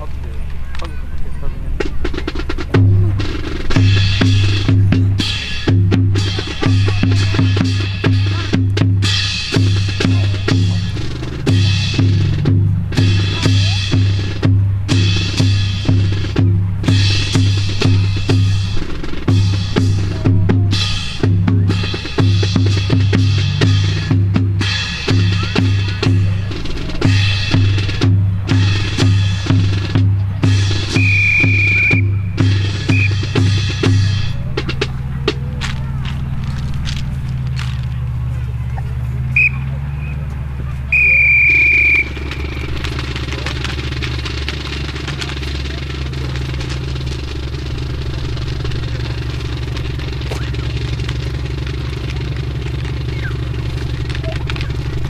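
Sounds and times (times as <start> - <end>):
low drone: 0.0 - 55.0
bass drum beating: 1.3 - 55.0
snare drum strokes: 1.8 - 38.1, 40.9 - 55.0
drum rim clicks: 30.7 - 55.0.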